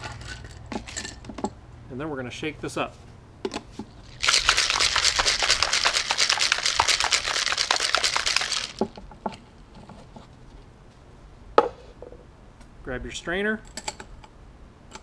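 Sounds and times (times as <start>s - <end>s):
ice rattling in cocktail shaker: 0.0s - 1.3s, 4.0s - 9.0s.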